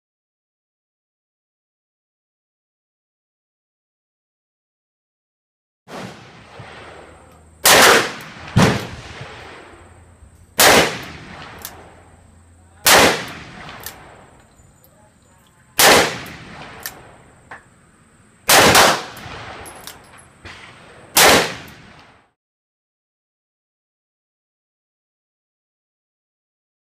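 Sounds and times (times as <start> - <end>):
faint distant gunshot pops: 5.9 - 9.7, 20.4 - 22.2.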